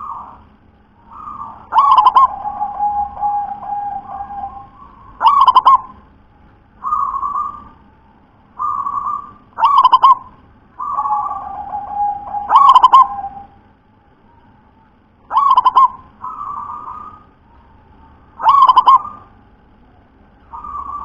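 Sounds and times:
dove cooing: 0:01.0 - 0:06.1, 0:06.8 - 0:07.8, 0:08.6 - 0:13.6, 0:15.3 - 0:19.4, 0:20.5 - 0:21.0.

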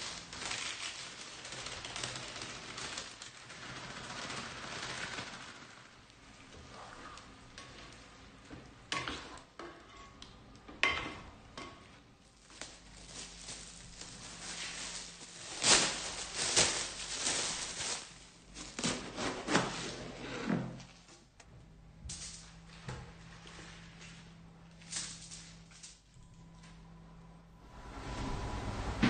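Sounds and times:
cling film crinkling: 0:00.0 - 0:06.0, 0:12.4 - 0:19.2.

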